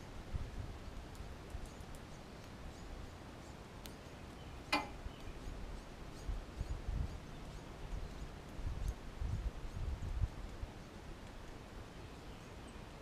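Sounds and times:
wind rumble on microphone: 0.0 - 2.0, 4.7 - 13.0.

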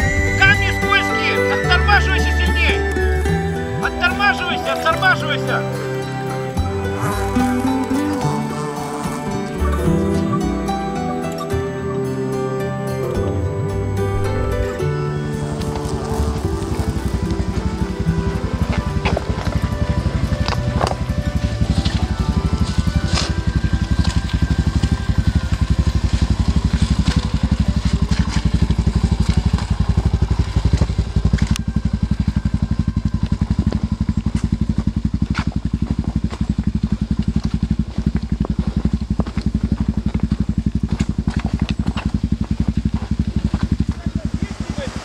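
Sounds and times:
motorcycle engine running: 0.0 - 45.0.

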